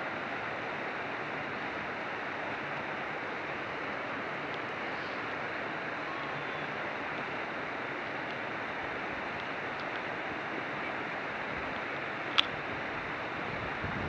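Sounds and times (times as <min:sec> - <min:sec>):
wind noise on microphone: 0:12.4 - 0:14.0.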